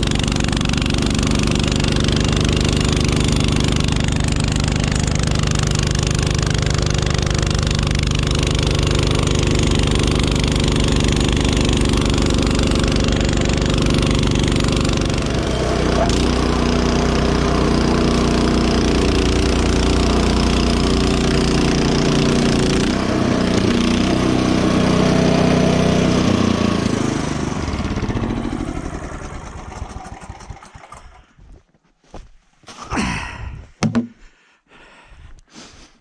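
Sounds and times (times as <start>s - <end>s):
snowblower engine running: 0.0s - 31.4s
scuffs and thumps: 31.4s - 34.4s.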